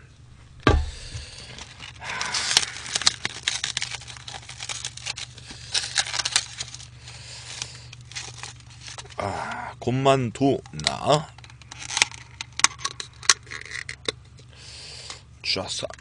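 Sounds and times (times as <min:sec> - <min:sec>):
plastic wrap crinkling and tearing: 0:00.8 - 0:09.2, 0:10.8 - 0:14.1.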